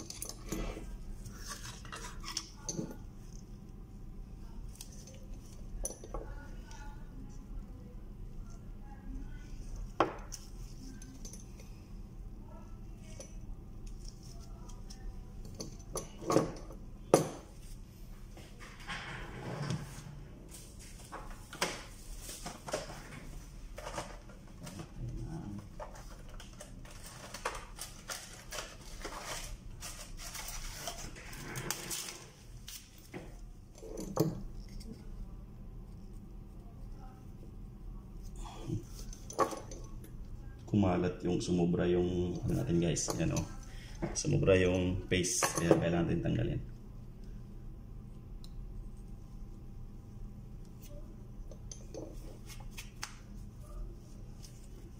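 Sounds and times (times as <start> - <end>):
rustling and scraping: 0.0 - 3.4, 17.4 - 35.2.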